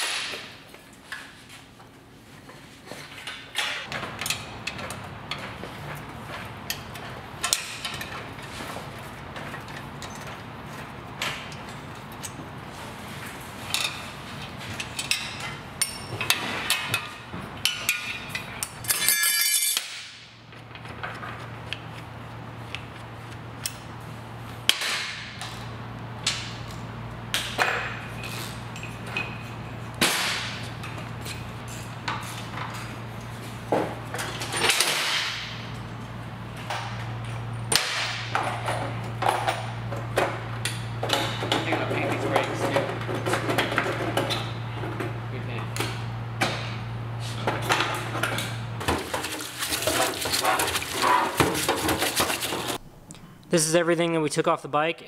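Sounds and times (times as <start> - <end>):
hand tools clanking on metal: 17.6 - 20.0.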